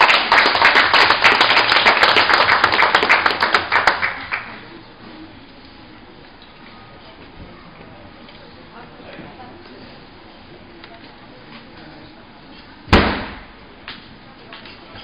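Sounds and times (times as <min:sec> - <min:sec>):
crowd clapping: 0:00.0 - 0:04.7.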